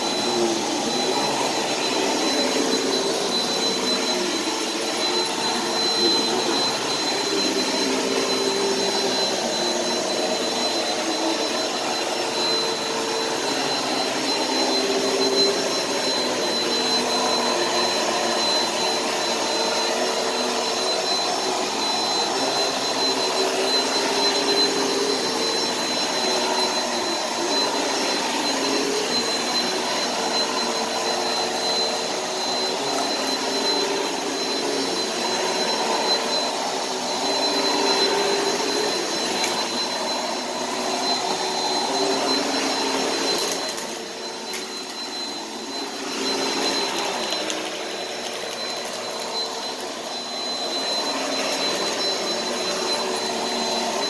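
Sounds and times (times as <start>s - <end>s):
vacuum cleaner running: 0.0s - 54.0s.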